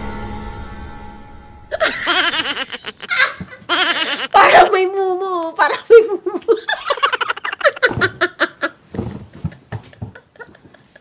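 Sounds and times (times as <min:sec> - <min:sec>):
women laughing hard: 0:01.7 - 0:04.6, 0:06.0 - 0:11.0.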